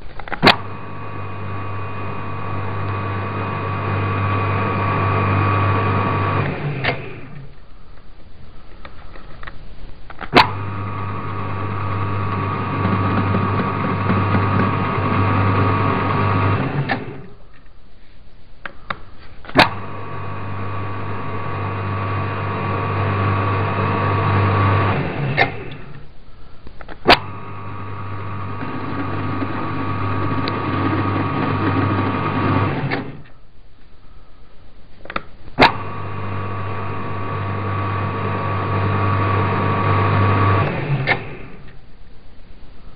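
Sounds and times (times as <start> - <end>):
lathe motor humming and whining: 0.5 - 7.5, 10.4 - 17.3, 19.6 - 26.0, 27.1 - 33.2, 35.6 - 41.7.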